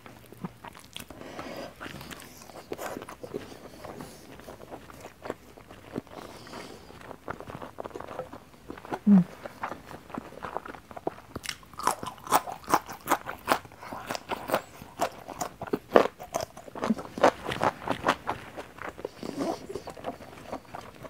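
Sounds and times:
crisp chewing crunches: 0.0s - 21.0s
person humming low: 9.0s - 9.4s.

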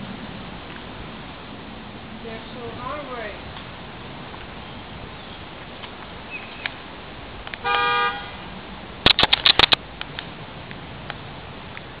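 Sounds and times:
car horn toot: 7.6s - 8.4s
sharp clicks or knocks: 9.0s - 10.3s.

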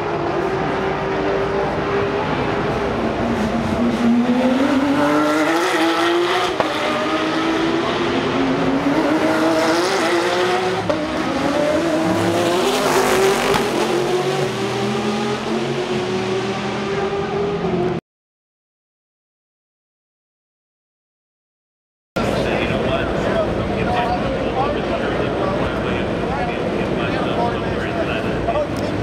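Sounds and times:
race car engines accelerating: 0.0s - 18.0s, 22.2s - 29.0s.

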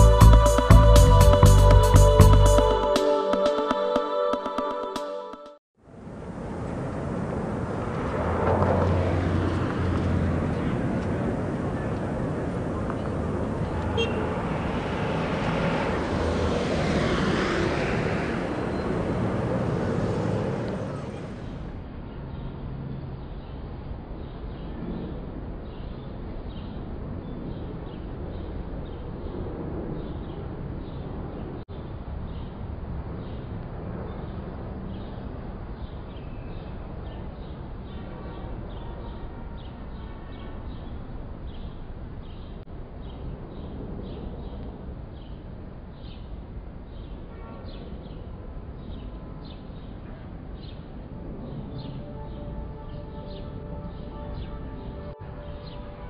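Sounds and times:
low rumble of traffic: 5.8s - 56.0s
vehicle passing rush: 6.0s - 21.9s, 50.3s - 56.0s.

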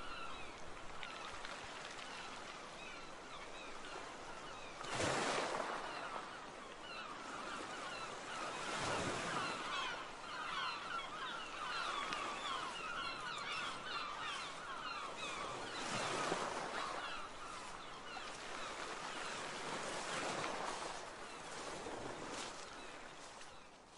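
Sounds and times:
waves on the shore: 0.0s - 23.9s
flock of birds chattering: 2.2s - 21.6s.

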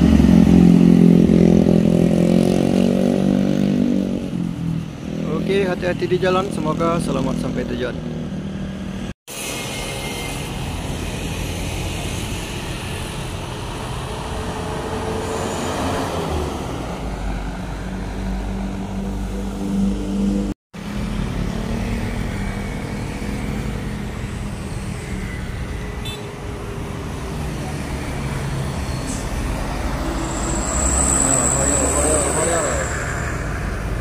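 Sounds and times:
motorcycles passing: 0.0s - 9.1s, 11.9s - 34.0s
bus engine rumbling: 10.5s - 34.0s
cars passing: 10.5s - 34.0s.

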